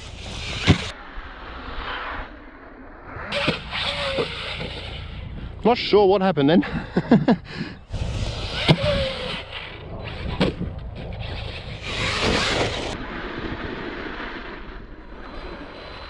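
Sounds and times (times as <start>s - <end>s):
rc truck running over dirt: 0.0s - 1.0s, 3.3s - 5.7s, 7.8s - 16.0s.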